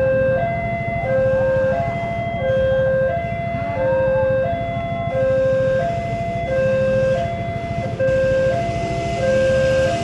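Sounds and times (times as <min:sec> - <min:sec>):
level crossing two-tone alarm: 0:00.0 - 0:10.0.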